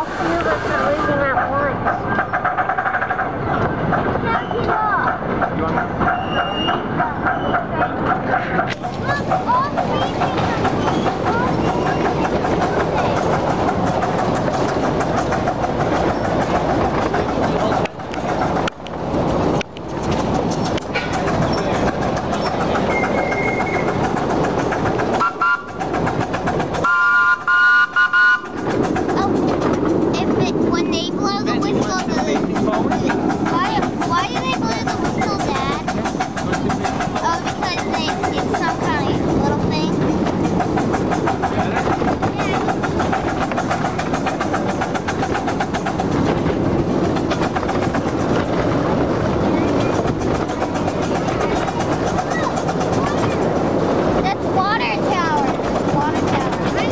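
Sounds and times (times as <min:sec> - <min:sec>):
miniature train rolling on track: 0:00.0 - 0:56.9
rail clicks: 0:00.0 - 0:56.9
train whistle blasts: 0:25.2 - 0:25.8, 0:26.8 - 0:28.5.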